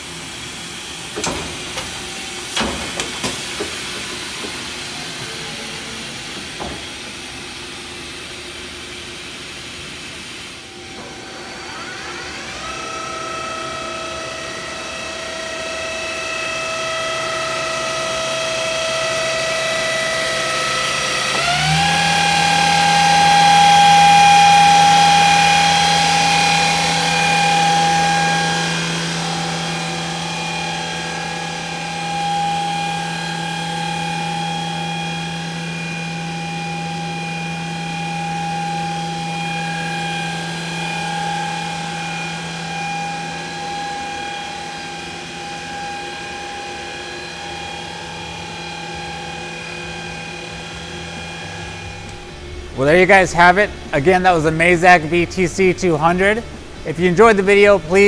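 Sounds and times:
machine spindle whine: 0:00.0 - 0:58.0.

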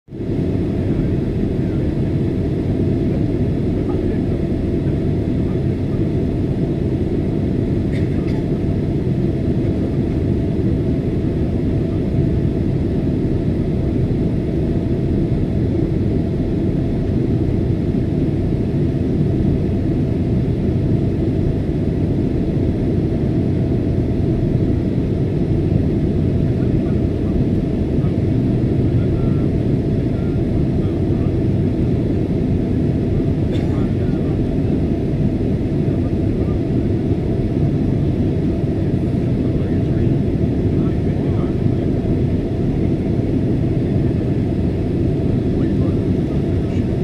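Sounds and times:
aircraft cabin engine rumble: 0:00.2 - 0:47.0.

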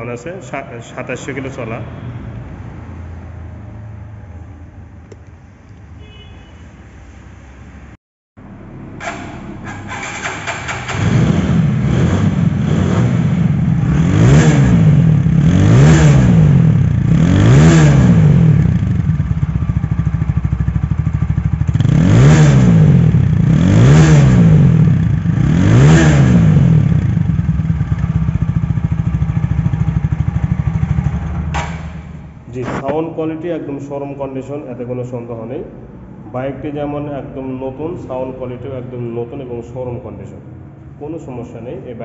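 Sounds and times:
motorcycle engine idling and revving: 0:08.4 - 0:32.5.

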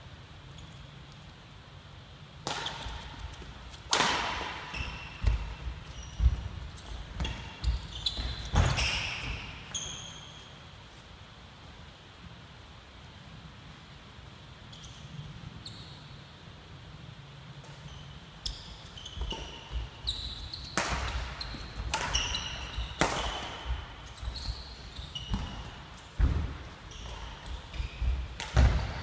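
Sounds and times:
rackets striking shuttlecock: 0:02.4 - 0:06.4, 0:19.2 - 0:29.0
shoes squeaking on court: 0:02.5 - 0:10.7, 0:14.7 - 0:16.2, 0:17.6 - 0:29.0.

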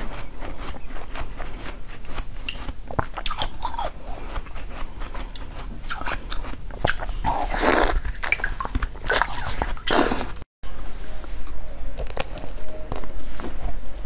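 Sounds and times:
crunching frozen jelly: 0:00.0 - 0:10.5.

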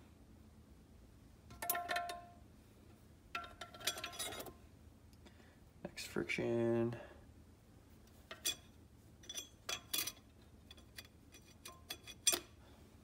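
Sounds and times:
light metallic clicks and clinks: 0:08.3 - 0:12.6.

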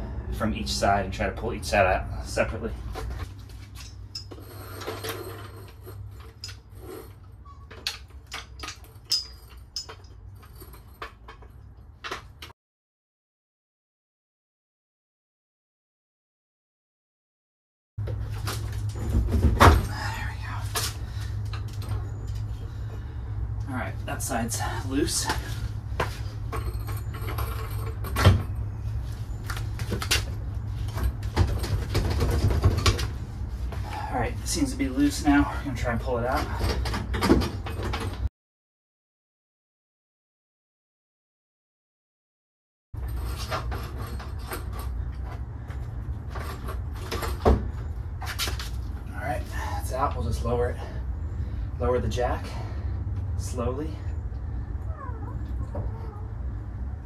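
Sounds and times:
metallic clinks and knocks: 0:03.0 - 0:12.5, 0:26.0 - 0:28.7
steady low hum: 0:18.0 - 0:38.2.

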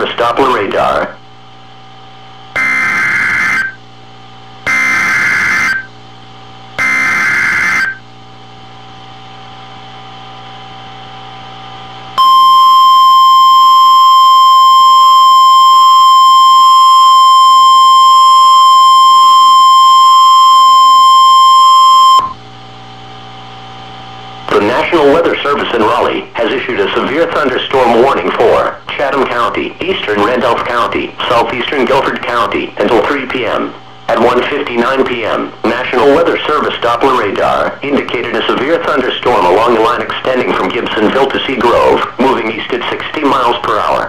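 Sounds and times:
buzzy digital data tones: 0:02.2 - 0:06.0, 0:06.8 - 0:08.1
steady alarm tone: 0:02.3 - 0:06.0, 0:06.7 - 0:08.1, 0:12.2 - 0:22.4.

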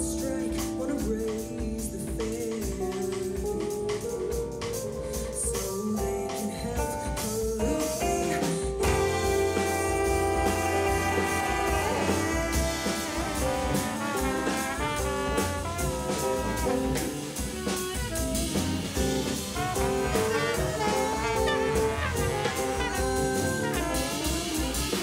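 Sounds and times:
bass and drums: 0:00.0 - 0:25.0
jazz horn section playing: 0:08.8 - 0:25.0.

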